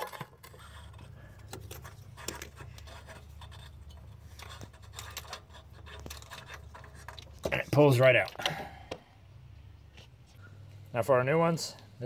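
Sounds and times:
wrench clicking and scraping: 0:00.0 - 0:07.5
low steady hum: 0:00.0 - 0:12.0.

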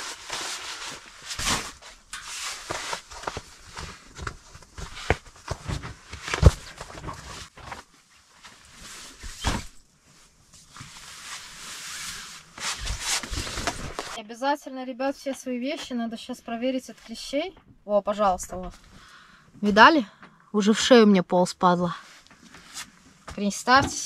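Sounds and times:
tent fabric rustling: 0:00.0 - 0:14.2.

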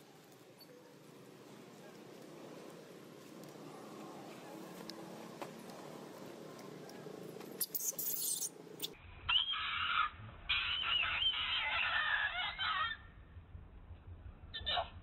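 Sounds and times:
baby monkey squealing cry: 0:07.6 - 0:08.5, 0:09.3 - 0:13.0.

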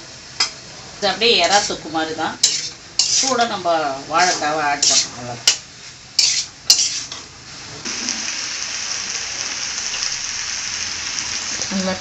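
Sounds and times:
frying sizzle: 0:00.0 - 0:12.0
metal spoon scraping pan: 0:01.4 - 0:01.8, 0:02.4 - 0:03.6, 0:04.2 - 0:05.6, 0:06.2 - 0:07.2.

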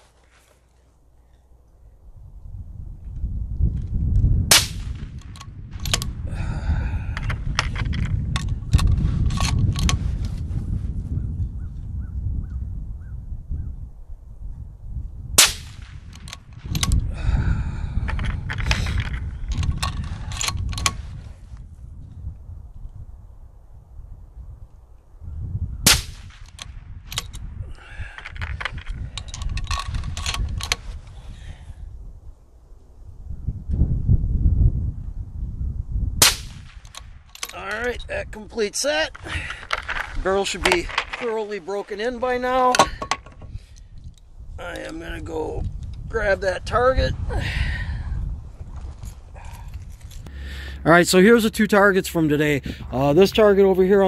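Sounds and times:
suppressed rifle shot: 0:04.5 - 0:06.1, 0:15.4 - 0:16.2, 0:25.8 - 0:26.5, 0:36.2 - 0:37.1
rifle bolt clicks and rattles: 0:04.5 - 0:06.2, 0:07.1 - 0:10.4, 0:15.8 - 0:17.1, 0:18.0 - 0:21.2, 0:26.2 - 0:31.0, 0:36.5 - 0:38.1, 0:39.1 - 0:41.6, 0:42.4 - 0:46.1, 0:48.8 - 0:50.3
sharp metallic clicks: 0:04.5 - 0:06.2, 0:25.9 - 0:27.5, 0:36.2 - 0:38.1.

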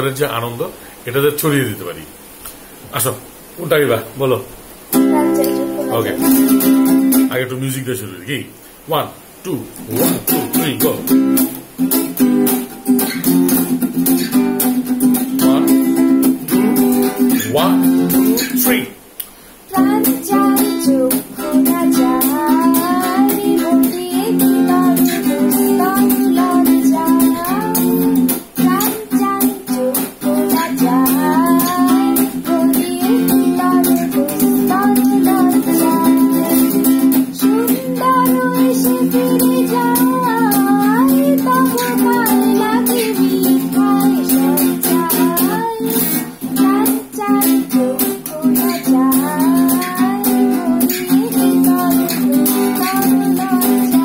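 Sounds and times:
acoustic guitar strumming chords: 0:04.9 - 0:07.5, 0:09.5 - 0:54.0
woman singing: 0:05.0 - 0:06.9, 0:19.7 - 0:54.0.

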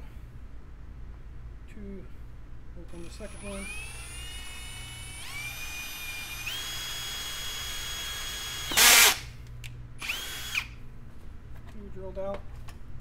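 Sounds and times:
cordless drill whine: 0:03.0 - 0:09.3, 0:10.0 - 0:10.8
drill bit grinding through plastic: 0:03.3 - 0:09.2, 0:10.0 - 0:10.7.

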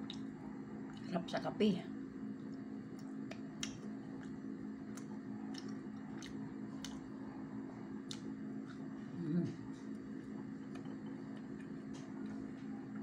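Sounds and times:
steady low hum: 0:00.0 - 0:13.0
wet mouth clicks: 0:03.0 - 0:07.0, 0:08.1 - 0:08.8
person chewing: 0:03.0 - 0:07.1, 0:08.0 - 0:12.5.

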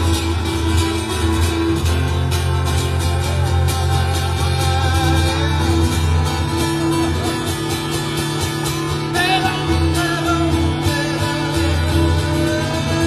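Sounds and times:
acoustic guitar strumming: 0:00.0 - 0:13.0
man singing: 0:03.6 - 0:07.8, 0:08.9 - 0:13.0.

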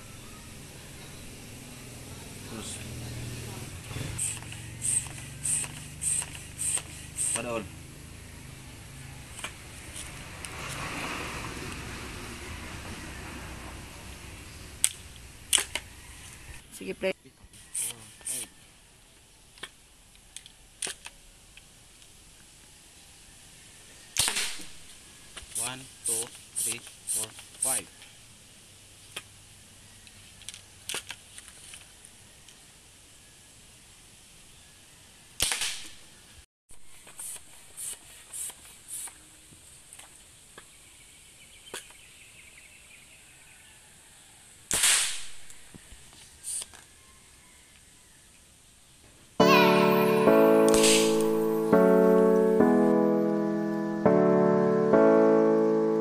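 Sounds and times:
marble gun shot: 0:24.2 - 0:24.7, 0:35.4 - 0:36.0, 0:44.7 - 0:45.4.

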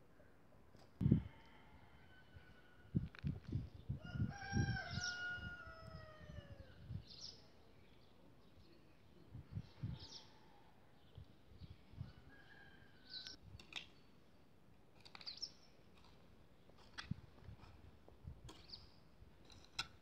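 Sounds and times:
rooster crowing: 0:04.0 - 0:06.7.

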